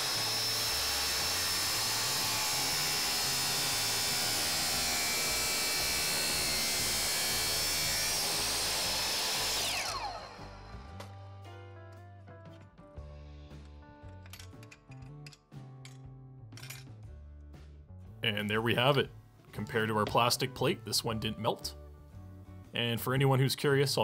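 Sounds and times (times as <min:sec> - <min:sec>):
saw blade cutting metal: 0:00.0 - 0:10.7
miter saw whining: 0:00.0 - 0:11.1
saw blade spinning down: 0:00.0 - 0:11.2.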